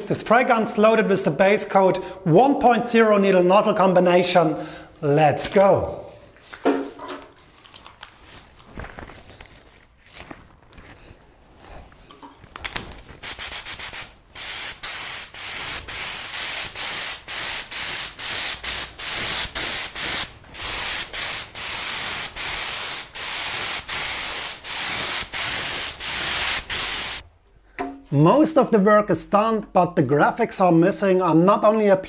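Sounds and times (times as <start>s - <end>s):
spray gun hissing: 13.2s - 27.2s.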